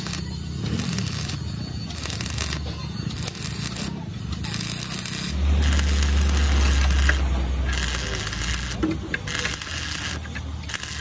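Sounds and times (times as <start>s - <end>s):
welding arc crackling: 0.0s - 11.0s.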